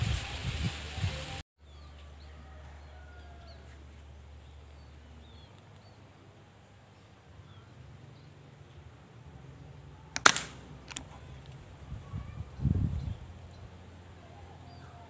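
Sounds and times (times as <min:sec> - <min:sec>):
small birds chirping: 0:01.6 - 0:08.9
air rifle shot: 0:10.2 - 0:10.7.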